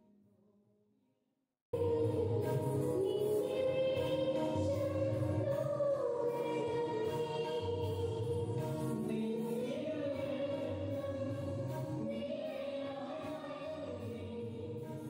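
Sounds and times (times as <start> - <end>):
choir singing a hymn: 2.4 - 15.0.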